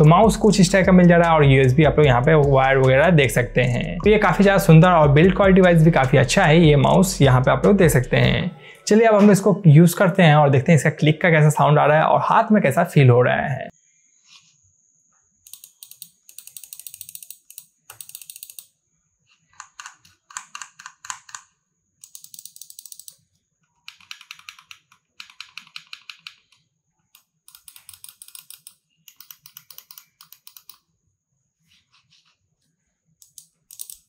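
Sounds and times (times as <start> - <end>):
mouse buttons clicking rapidly: 15.5 - 18.7, 19.6 - 23.2, 23.8 - 26.6, 27.2 - 30.9, 33.2 - 34.0.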